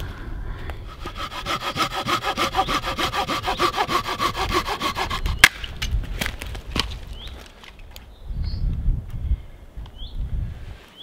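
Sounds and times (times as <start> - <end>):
hand saw cutting log: 0.9 - 5.6.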